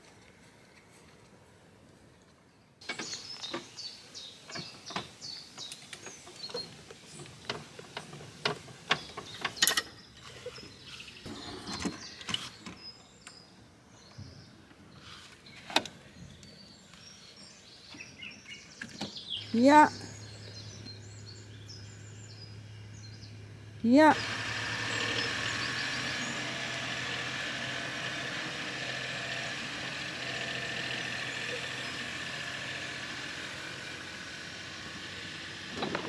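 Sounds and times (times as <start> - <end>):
birds chirping: 2.5 - 36.0.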